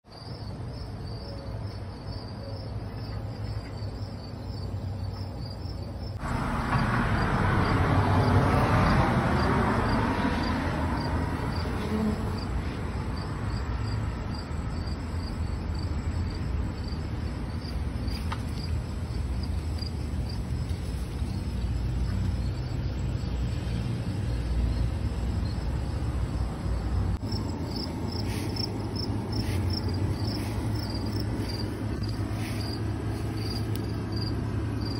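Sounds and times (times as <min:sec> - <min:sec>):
crickets chirping: 0:00.1 - 0:34.9
car passing by: 0:06.2 - 0:14.6, 0:20.8 - 0:34.9
low background rumble: 0:24.1 - 0:34.9.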